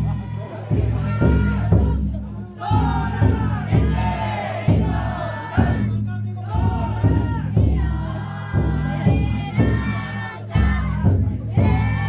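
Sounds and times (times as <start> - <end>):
big drum strikes: 0.0 - 12.0
people chanting together: 0.0 - 12.0.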